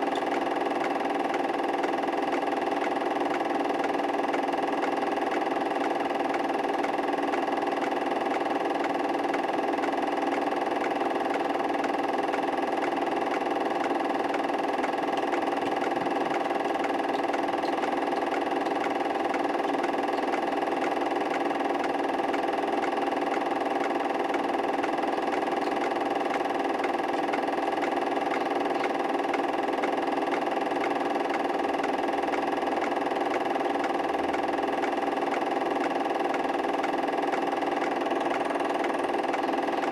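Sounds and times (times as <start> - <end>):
mechanical hum: 0.0 - 39.9.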